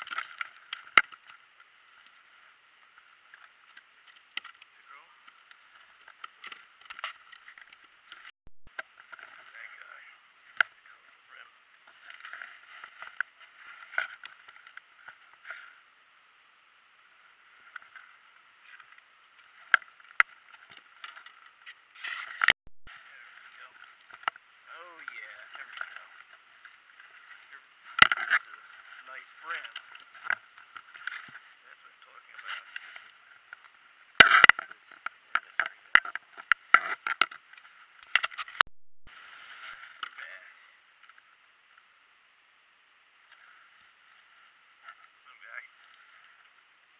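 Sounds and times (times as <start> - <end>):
rustling: 11.7 - 15.9, 17.2 - 38.6.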